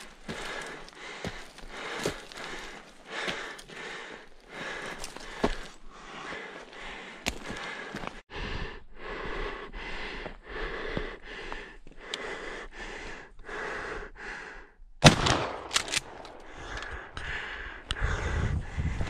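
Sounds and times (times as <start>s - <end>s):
heavy fast breathing: 0.0s - 14.9s, 15.8s - 19.0s
shotgun firing: 15.0s - 16.2s.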